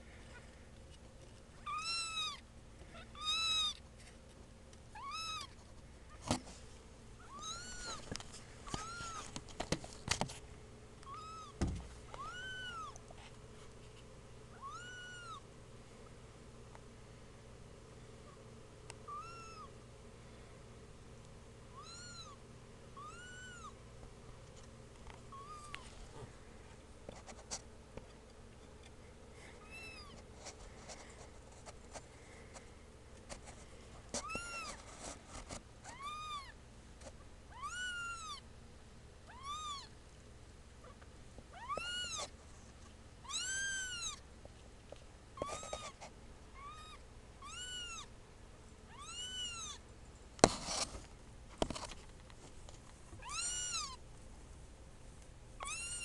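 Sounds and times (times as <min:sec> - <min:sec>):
kittens mewing: 0:53.2 - 0:54.0, 0:55.6 - 0:56.0.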